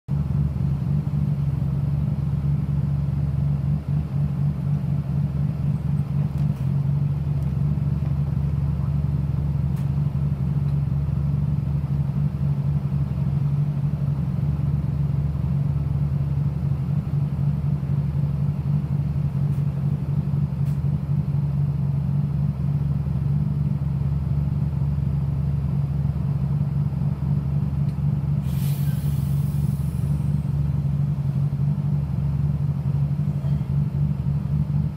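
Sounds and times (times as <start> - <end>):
bus diesel engine idling: 0.1 - 34.9
burst of hiss: 28.4 - 30.4.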